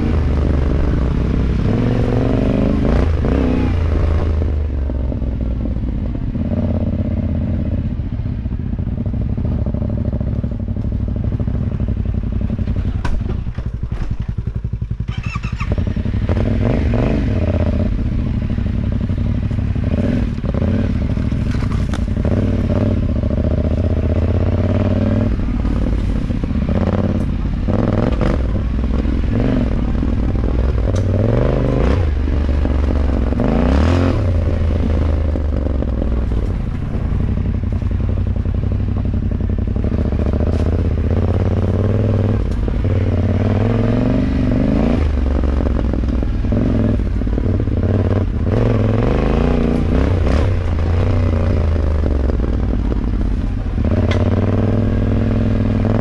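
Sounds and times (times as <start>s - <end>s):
motorcycle engine running: 0.0s - 56.0s
clattering and knocks of bike: 12.4s - 15.1s.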